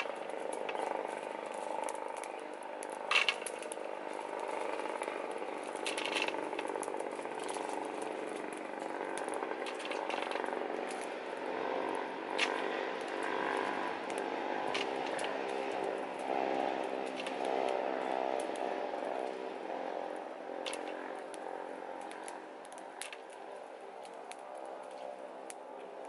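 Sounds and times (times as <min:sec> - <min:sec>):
steady droning hum: 0:00.0 - 0:26.0.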